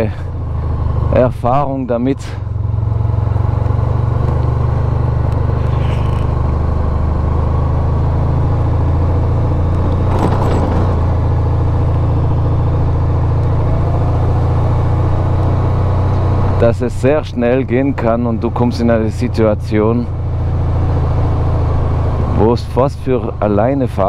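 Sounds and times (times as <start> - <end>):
motorcycle engine droning: 0.0 - 24.0
short rattle: 9.8 - 11.4.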